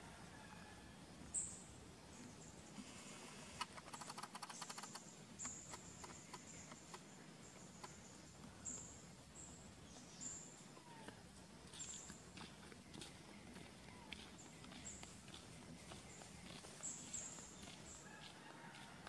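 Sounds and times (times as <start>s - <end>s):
rapid run of clicks: 3.6s - 7.1s.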